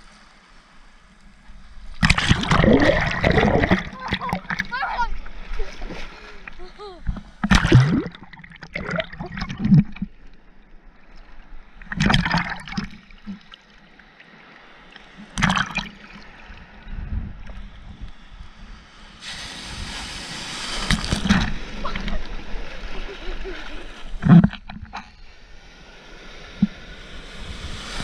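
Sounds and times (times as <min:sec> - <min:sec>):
waves splashing and sloshing: 0:00.0 - 0:28.0
foamy surf hissing over microphone: 0:17.6 - 0:24.2, 0:25.2 - 0:28.0.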